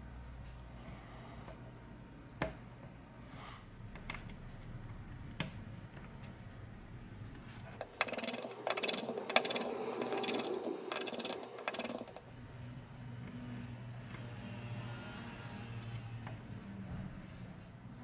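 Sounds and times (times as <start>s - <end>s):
small parts clicking and rattling: 7.8s - 12.2s.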